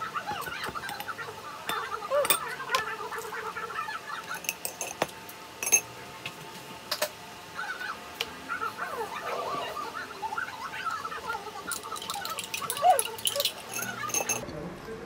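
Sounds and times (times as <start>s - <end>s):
cutlery and dishes clinking: 0.3s - 2.9s, 4.2s - 5.9s, 11.7s - 14.4s.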